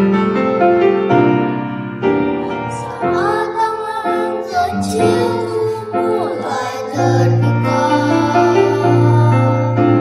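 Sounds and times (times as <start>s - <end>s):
piano accompaniment: 0.0s - 10.0s
children singing: 2.4s - 10.0s.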